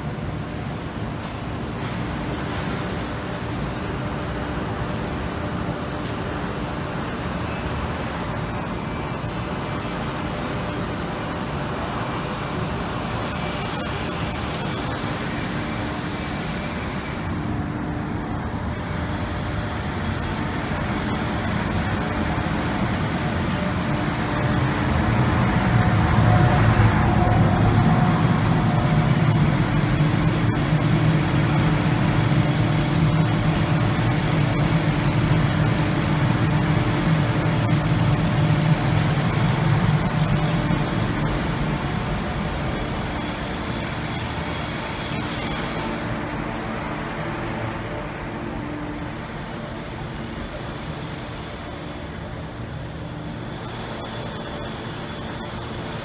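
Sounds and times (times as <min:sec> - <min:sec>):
street traffic: 0:02.4 - 0:32.7
heavy engine droning: 0:16.3 - 0:34.0.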